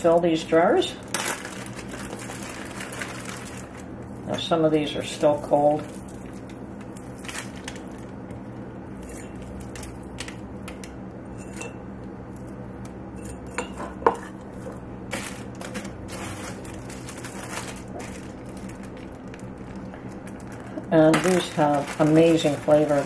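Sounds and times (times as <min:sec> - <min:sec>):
steady low hum: 0:00.0 - 0:23.0
plastic bag handling: 0:01.0 - 0:04.4, 0:05.4 - 0:08.2, 0:14.5 - 0:23.0.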